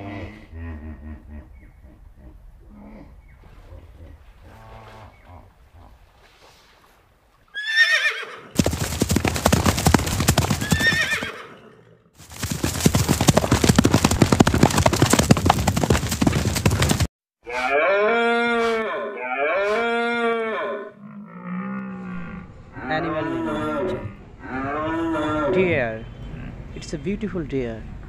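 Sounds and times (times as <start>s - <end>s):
horse whinnying: 7.6s - 11.8s, 17.5s - 20.9s, 22.1s - 25.7s
galloping hooves: 8.6s - 11.3s, 12.2s - 17.1s
deep bellowing calls: 17.5s - 26.8s.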